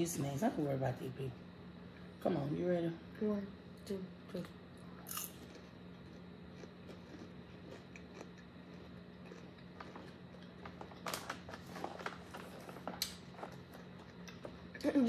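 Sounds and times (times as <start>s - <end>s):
low steady hum: 0.0s - 15.0s
chewing nuts: 5.0s - 14.9s
crackles: 5.2s - 14.6s.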